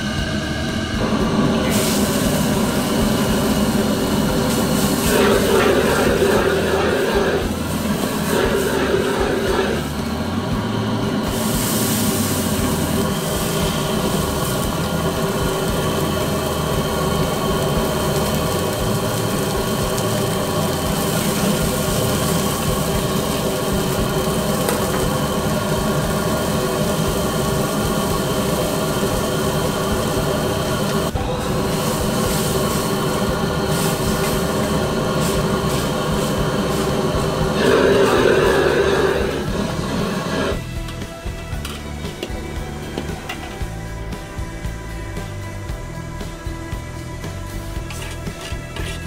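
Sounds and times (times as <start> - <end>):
liquid boiling and sizzling: 0.0 - 49.0
wok burner roaring: 0.0 - 49.0
metal ladle stirring in wok: 47.9 - 49.0.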